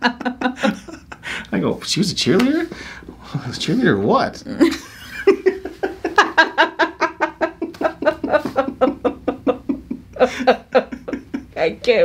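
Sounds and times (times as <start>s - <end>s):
woman laughing: 0.0s - 1.3s, 4.5s - 11.8s.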